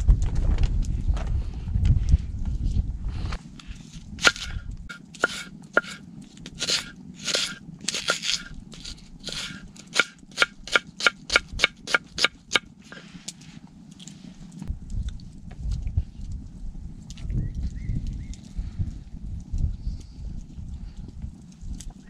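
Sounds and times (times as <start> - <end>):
knife cutting vegetables on board: 4.2 - 6.0, 6.6 - 13.1.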